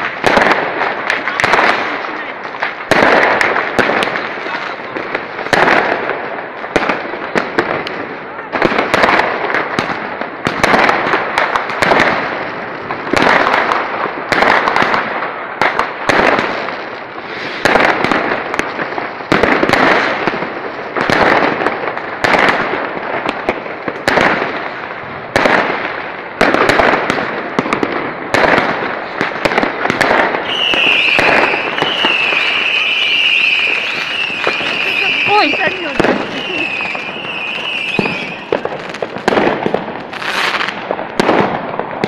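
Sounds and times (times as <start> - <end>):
fireworks bangs: 0.0 - 42.0
fireworks crackling: 0.0 - 42.0.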